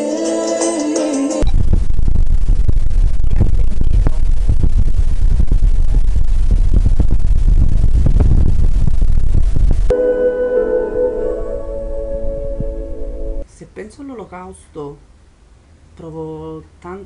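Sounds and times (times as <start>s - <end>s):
loud low rumble: 1.4s - 13.4s.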